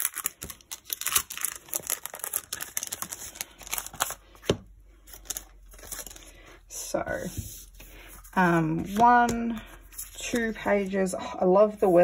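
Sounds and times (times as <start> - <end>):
plastic sleeve crinkling: 0.0 - 4.4.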